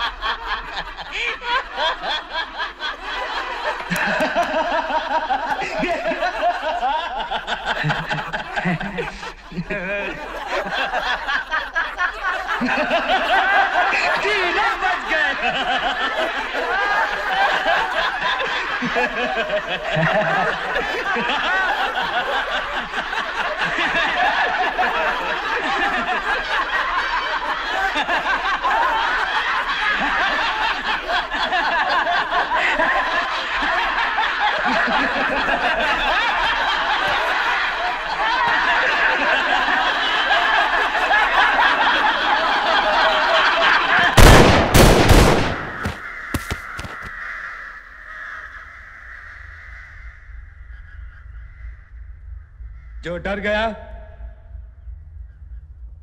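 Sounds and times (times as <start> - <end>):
men laughing loudly: 0.0 - 47.1
pistol shots: 44.2 - 46.5.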